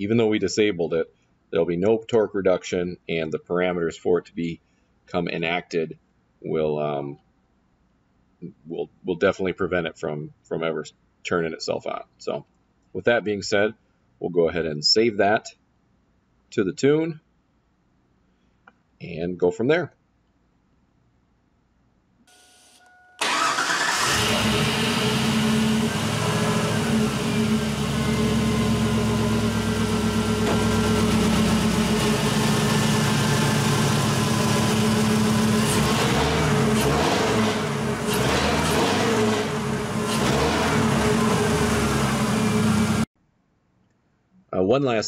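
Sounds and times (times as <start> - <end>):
engine starting and running: 23.2 - 43.1.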